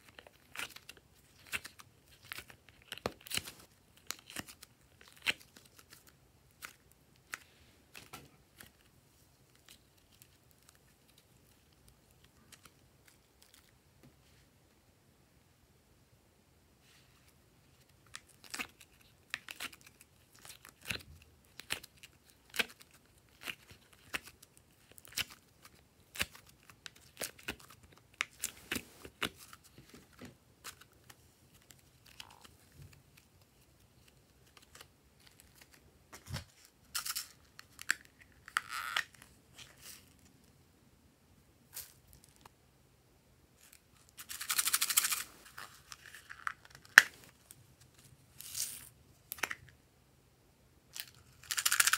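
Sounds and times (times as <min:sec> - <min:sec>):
sticky clay clicks and peeling: 0:00.0 - 0:13.8, 0:17.8 - 0:40.1.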